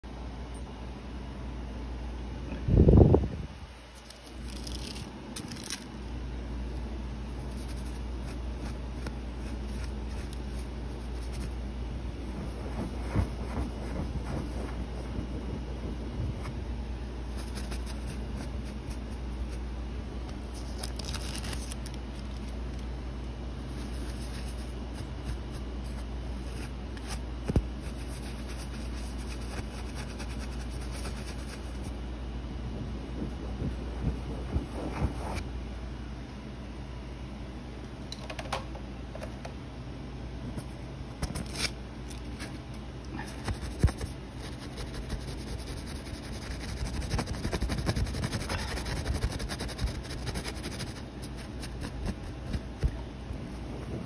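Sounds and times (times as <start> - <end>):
low hum: 0.0 - 54.0
low background rumble: 0.1 - 38.2, 38.9 - 54.0
brush crinkling gold leaf: 3.8 - 5.9, 7.3 - 16.5, 17.2 - 19.7, 20.4 - 22.8, 23.7 - 32.0, 43.3 - 52.8.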